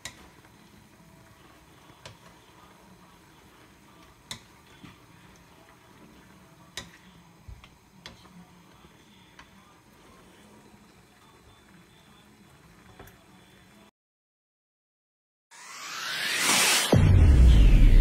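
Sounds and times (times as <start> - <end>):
wooden spatula stirring in pan: 0.0 - 13.0
faint steady hiss: 0.0 - 13.9.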